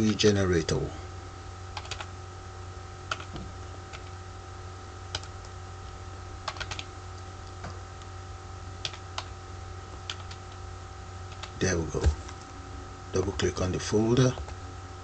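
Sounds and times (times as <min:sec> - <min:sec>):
background hum: 0:00.0 - 0:15.0
keyboard keys clicking: 0:01.8 - 0:02.1, 0:03.1 - 0:04.1, 0:05.1 - 0:05.5, 0:06.4 - 0:06.9, 0:10.1 - 0:10.5, 0:11.3 - 0:11.6.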